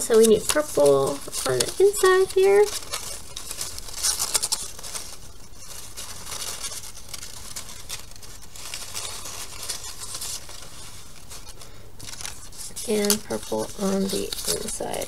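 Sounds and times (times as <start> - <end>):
paper strips rustling and crinkling: 0.0 - 15.0.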